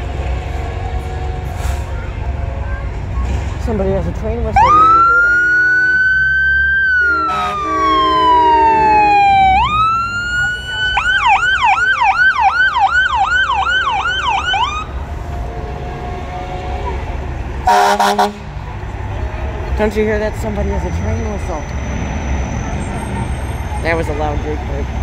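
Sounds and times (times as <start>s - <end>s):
truck engine rumble: 0.0s - 25.0s
emergency vehicle siren: 4.5s - 18.4s
horn blast: 4.6s - 6.2s, 7.0s - 9.1s, 15.4s - 18.5s.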